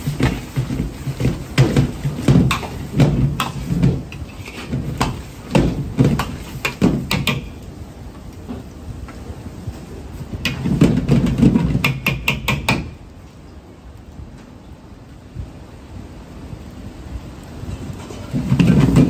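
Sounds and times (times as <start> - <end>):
gas burner rumble: 0.0 - 12.1, 17.4 - 19.0.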